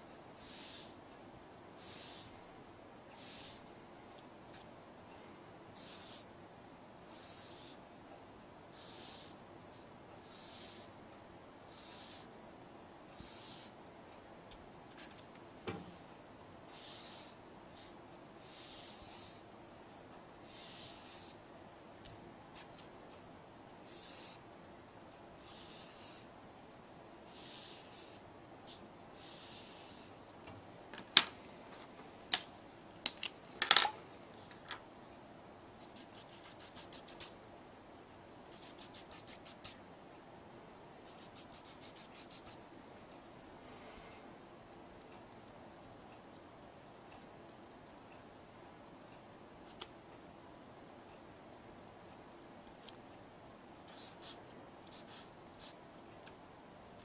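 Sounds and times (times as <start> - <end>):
pencil scratching on paper: 0.4 - 1.0, 1.8 - 2.3, 3.2 - 3.6, 5.8 - 6.3, 7.1 - 7.8, 8.7 - 9.4, 10.2 - 10.9, 11.7 - 12.3, 13.2 - 13.8, 16.7 - 17.4, 18.4 - 19.4, 20.4 - 21.4, 23.8 - 24.4, 25.4 - 26.3, 27.3 - 30.1, 35.8 - 37.3, 38.5 - 39.8, 41.0 - 42.6, 53.9 - 55.8.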